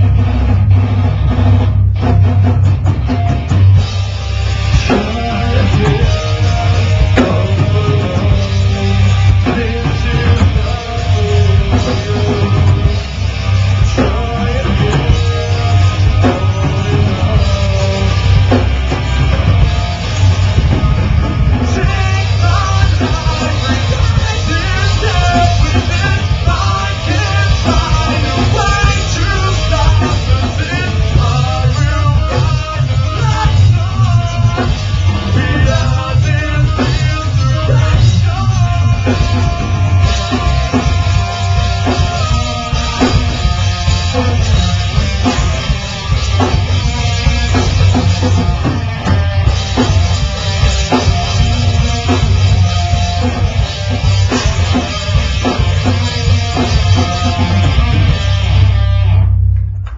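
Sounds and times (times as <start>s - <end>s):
bass guitar: 0.0s - 59.9s
drum kit: 0.0s - 59.9s
electric guitar: 0.0s - 59.9s
person singing: 4.9s - 13.1s, 14.0s - 18.6s, 20.6s - 45.4s.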